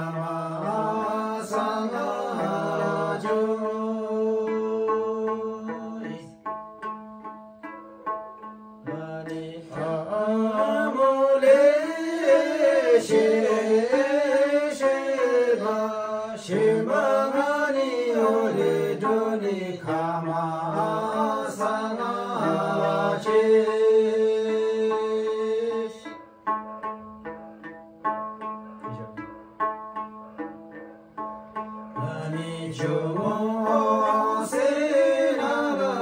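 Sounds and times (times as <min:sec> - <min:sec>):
men singing together: 0:00.0 - 0:06.2, 0:08.9 - 0:26.0, 0:32.0 - 0:36.0
plucked lute: 0:00.0 - 0:36.0.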